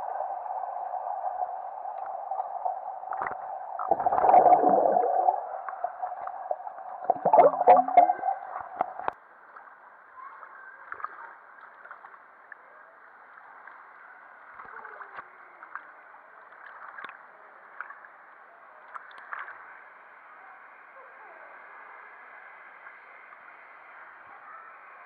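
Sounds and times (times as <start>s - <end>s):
muffled water lapping and gurgling: 0.0s - 25.0s
small splashes: 14.6s - 18.1s.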